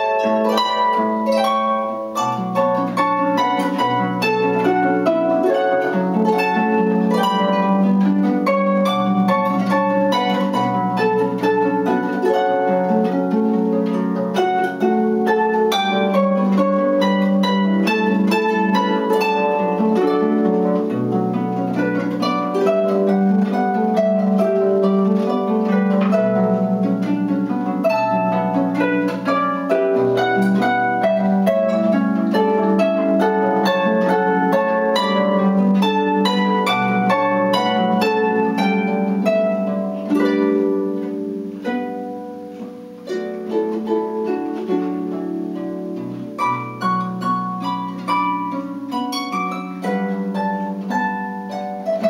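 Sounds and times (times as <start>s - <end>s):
harp playing: 0.0s - 52.0s.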